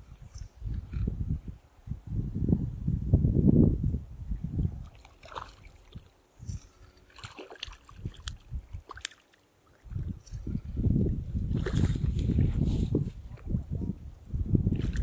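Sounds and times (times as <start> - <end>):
wind buffeting microphone: 0.0 - 7.0, 7.8 - 8.9, 9.8 - 15.0
water splashing and sloshing: 4.8 - 12.7, 14.7 - 15.0.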